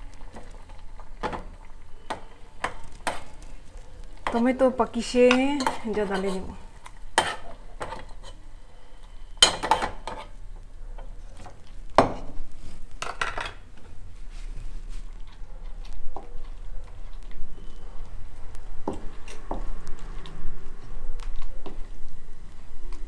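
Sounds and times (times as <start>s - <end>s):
metal spoon scraping pot: 5.2s - 6.6s, 7.2s - 8.4s.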